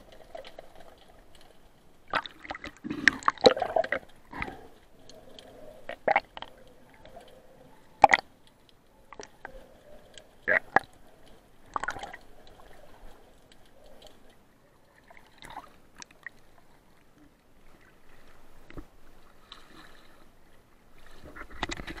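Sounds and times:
muffled underwater sloshing: 0.0 - 22.0
small waves splashing: 0.0 - 22.0.

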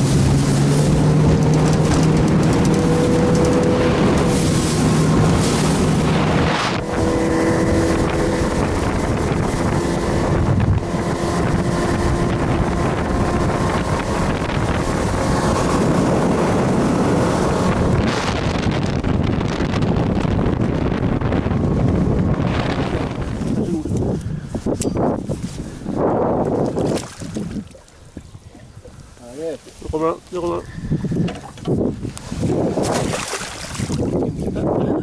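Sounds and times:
boat motor droning: 0.0 - 24.9
wind noise on microphone: 0.0 - 35.0.

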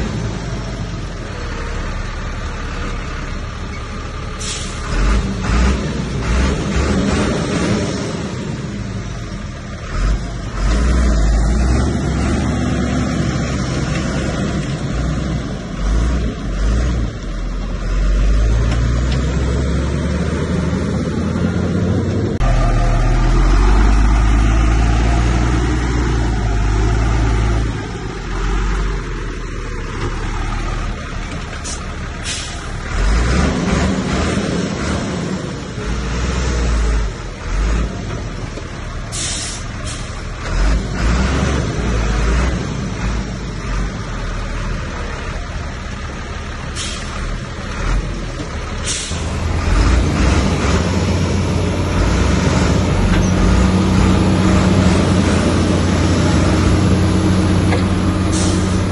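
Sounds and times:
diesel machinery engine running: 0.0 - 58.9.

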